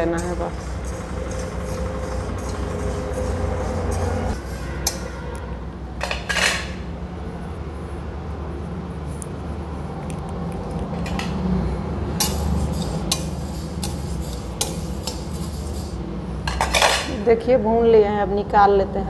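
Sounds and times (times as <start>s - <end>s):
spatula scraping metal pan: 0.0s - 5.2s, 12.2s - 17.1s.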